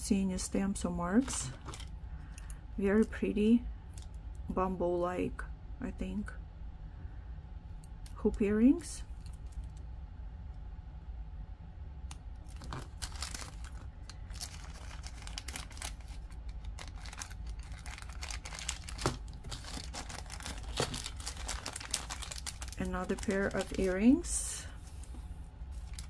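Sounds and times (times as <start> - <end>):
plastic baggie crinkling: 1.2 - 1.9, 12.4 - 26.0.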